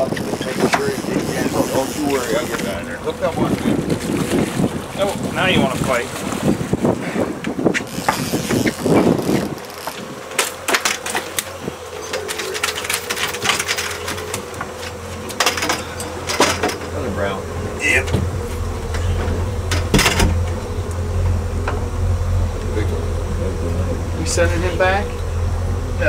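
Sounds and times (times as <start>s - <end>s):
steady hum: 0.0s - 26.0s
fish splashing in water: 1.7s - 16.7s.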